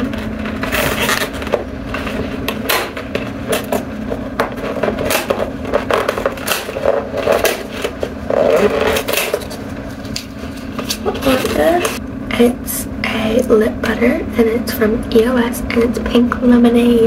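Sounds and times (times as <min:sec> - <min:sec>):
cardboard scraping and crackling: 0:00.0 - 0:12.0
steady low hum: 0:00.0 - 0:17.0.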